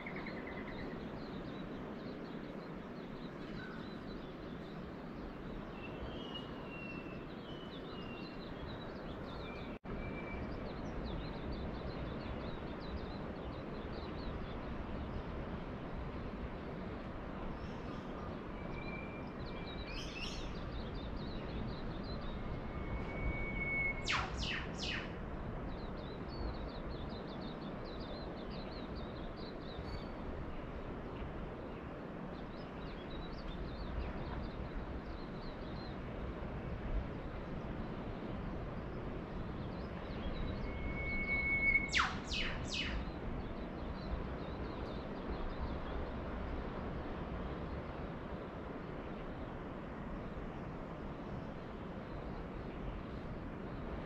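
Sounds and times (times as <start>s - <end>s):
bird whistle and sharp notes: 22.7s - 25.1s, 40.6s - 43.0s
faint high chirping: 39.9s - 43.1s.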